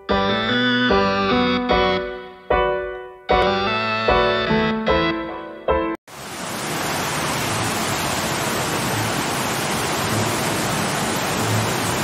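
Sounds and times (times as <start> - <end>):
waterfall rushing into pool: 6.1 - 12.0.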